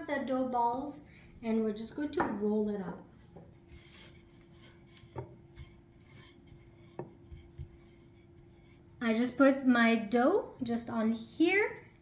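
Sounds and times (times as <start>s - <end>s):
rolling pin rubbing dough: 1.4s - 9.4s.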